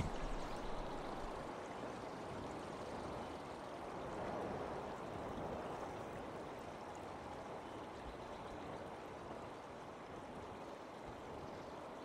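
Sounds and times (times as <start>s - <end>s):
faint outdoor rushing noise: 0.0s - 1.6s.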